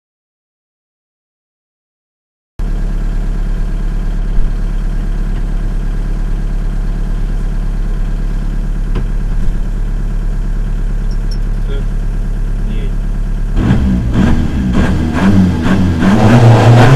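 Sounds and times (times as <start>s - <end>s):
diesel engine idling: 2.6s - 16.3s
brief knocks: 8.9s - 9.6s.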